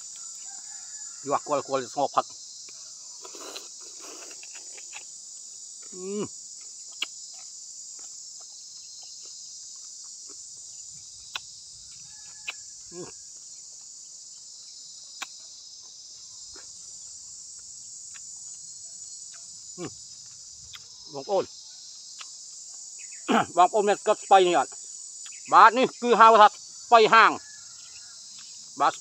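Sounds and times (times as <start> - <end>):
insects chirring chorus: 0.0 - 29.0
sharp clicks of eating: 6.6 - 10.4, 11.2 - 11.6, 12.2 - 12.7, 17.5 - 19.5, 22.1 - 22.7.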